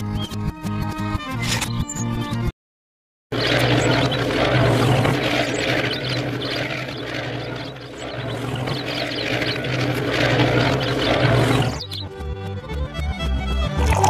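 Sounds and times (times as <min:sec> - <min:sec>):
rough machine running noise: 0:03.3 - 0:12.2
background music: 0:10.7 - 0:14.0.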